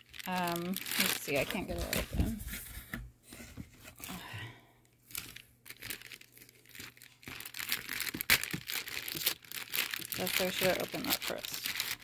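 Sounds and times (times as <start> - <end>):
plastic bag crinkling: 0.0 - 2.5, 4.9 - 12.0.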